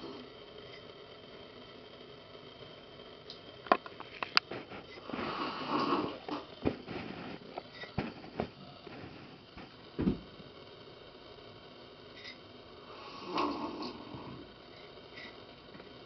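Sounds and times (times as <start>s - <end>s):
person slurping tea: 5.0s - 6.5s, 13.1s - 14.2s.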